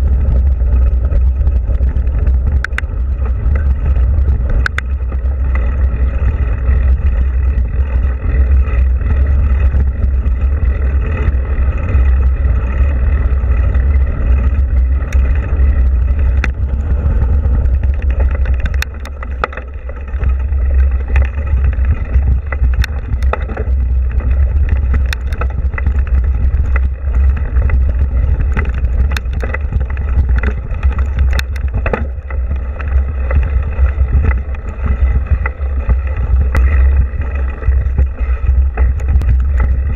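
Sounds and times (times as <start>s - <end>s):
bike rattling over rough trail: 0.0s - 39.9s
wind buffeting microphone: 0.0s - 39.9s.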